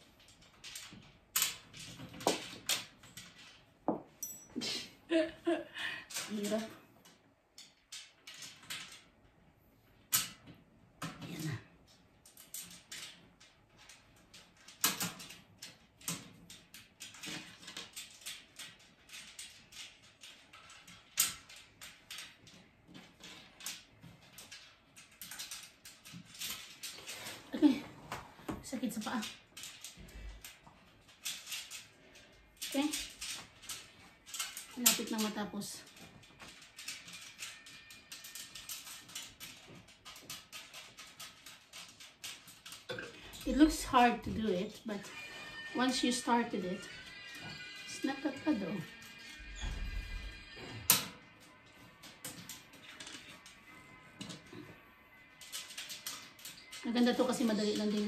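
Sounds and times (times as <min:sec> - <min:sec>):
metal trolley frame clicks and knocks: 0:10.1 - 0:27.1, 0:28.8 - 0:32.0, 0:32.6 - 0:44.8, 0:50.8 - 0:54.6, 0:55.4 - 0:58.0.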